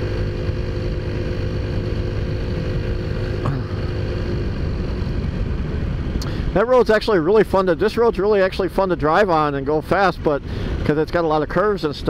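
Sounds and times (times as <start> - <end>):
scooter engine running: 0.0 - 6.0
wind rush: 0.0 - 12.0.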